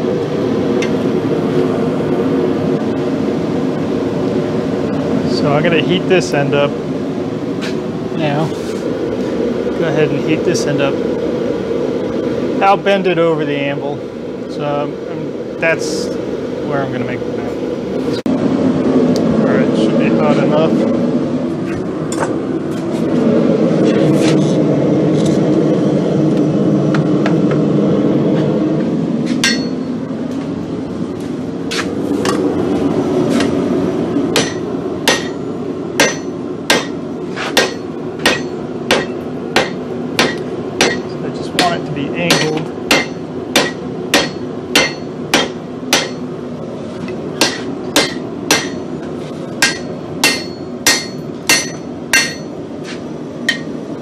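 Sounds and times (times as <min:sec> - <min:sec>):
steady rushing noise: 0:00.0 - 0:54.0
hammer clanking on anvil: 0:29.4 - 0:29.8, 0:34.4 - 0:35.4, 0:37.6 - 0:46.2, 0:47.4 - 0:48.8, 0:49.6 - 0:52.5.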